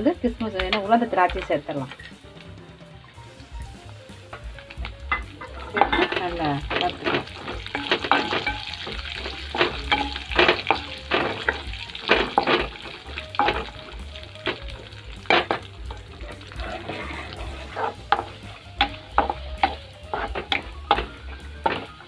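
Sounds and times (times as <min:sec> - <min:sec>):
frying sizzle: 0:00.0 - 0:22.0
spatula scraping metal pan: 0:05.1 - 0:14.6, 0:15.2 - 0:22.0.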